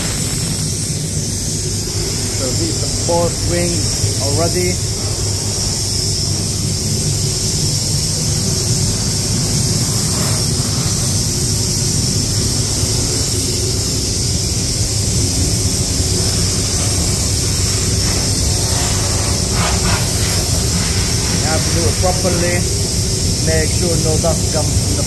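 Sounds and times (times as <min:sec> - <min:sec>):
compressed air hissing: 0:00.0 - 0:25.0
low rumble of booth airflow: 0:00.0 - 0:25.0.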